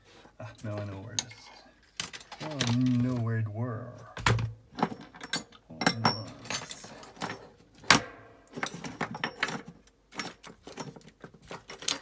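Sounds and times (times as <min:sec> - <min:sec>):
small plastic parts clicking and rattling: 0:00.6 - 0:03.3, 0:08.5 - 0:12.0.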